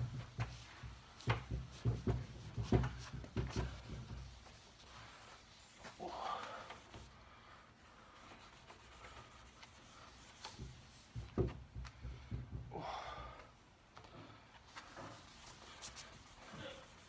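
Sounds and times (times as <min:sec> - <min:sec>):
steel wool rubbing on wood: 0:00.0 - 0:07.2, 0:08.0 - 0:11.4, 0:14.7 - 0:17.0.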